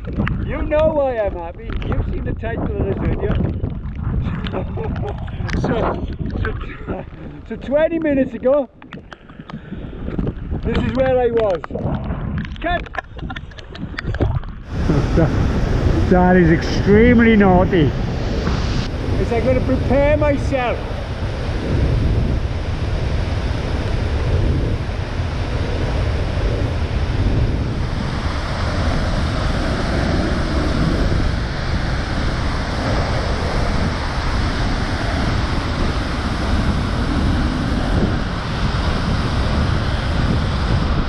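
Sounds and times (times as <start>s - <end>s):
wind buffeting microphone: 0.0s - 41.0s
waterfall rushing: 14.7s - 21.6s, 24.8s - 40.7s.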